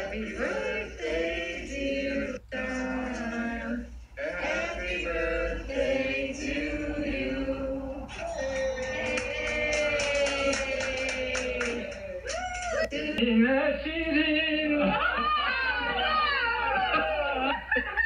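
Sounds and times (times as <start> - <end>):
voices singing a cappella: 0.0 - 12.2.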